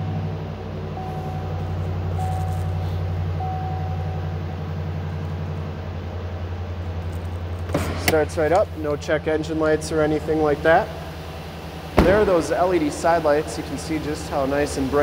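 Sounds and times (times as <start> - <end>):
truck engine idling: 0.0 - 15.0
dashboard warning chime: 0.9 - 4.6.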